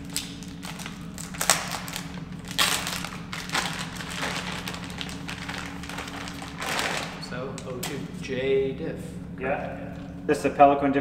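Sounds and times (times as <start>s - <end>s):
plastic packaging crinkling: 0.0s - 7.3s.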